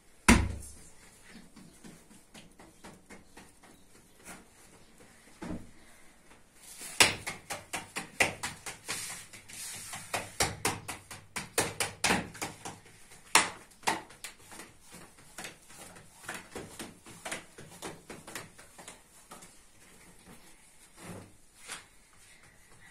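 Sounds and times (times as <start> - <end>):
dough slapped between hands: 6.9 - 14.6.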